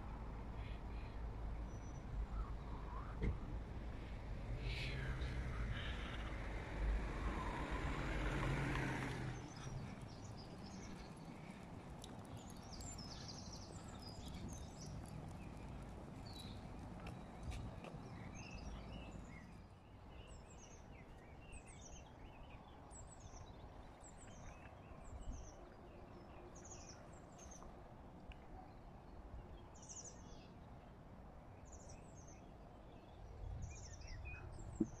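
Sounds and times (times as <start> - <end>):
small birds chirping: 8.2 - 27.8, 28.5 - 30.8, 31.5 - 35.0.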